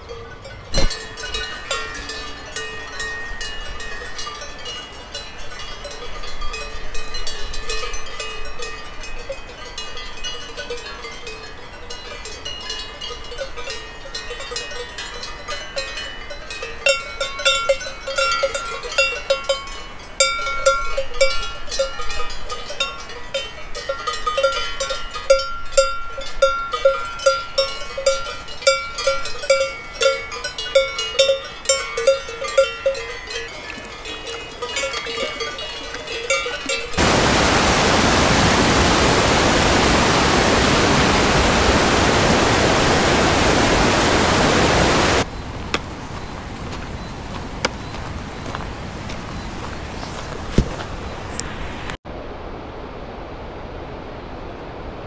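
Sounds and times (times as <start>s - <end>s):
cow bells clanging: 0.0s - 37.1s.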